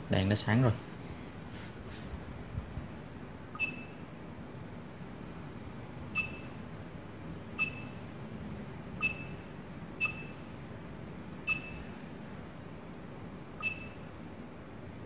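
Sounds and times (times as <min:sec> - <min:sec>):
short high beeps: 0:03.6 - 0:04.0, 0:06.2 - 0:06.6, 0:07.6 - 0:08.0, 0:09.0 - 0:09.4, 0:10.0 - 0:10.4, 0:11.5 - 0:11.9, 0:13.6 - 0:14.0.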